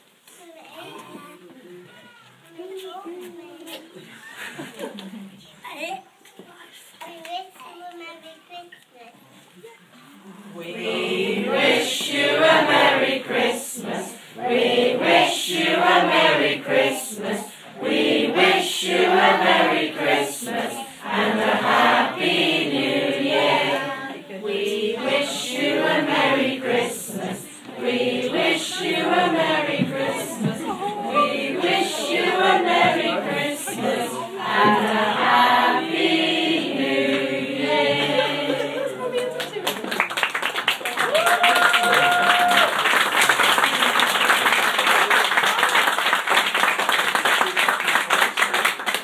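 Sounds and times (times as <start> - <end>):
children's choir singing: 10.6 - 39.5
audience applauding: 39.0 - 49.0.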